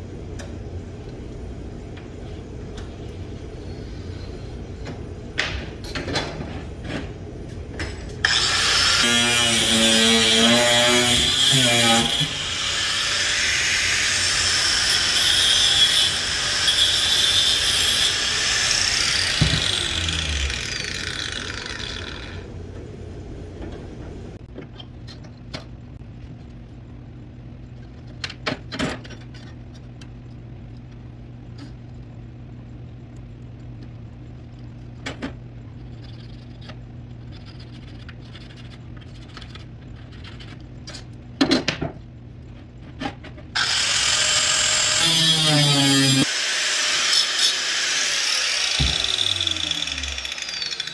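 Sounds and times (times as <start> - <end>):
power grinder whirring: 8.2 - 22.5, 43.6 - 50.9
low steady hum: 13.7 - 44.0.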